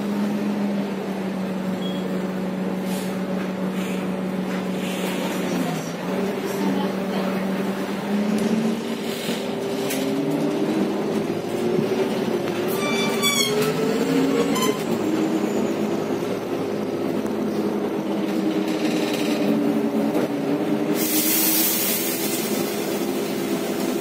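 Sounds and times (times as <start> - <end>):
bus engine droning: 0.0 - 24.0
road noise: 0.0 - 24.0
bus articulation joint squealing: 12.5 - 16.2.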